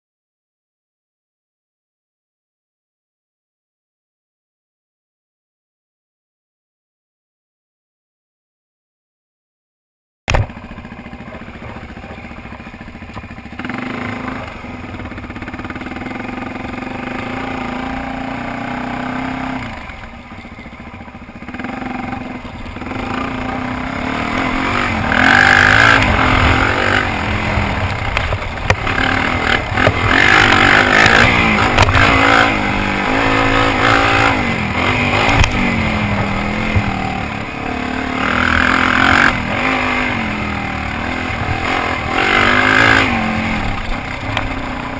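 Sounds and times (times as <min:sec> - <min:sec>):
motorcycle engine revving: 0:10.3 - 0:44.9.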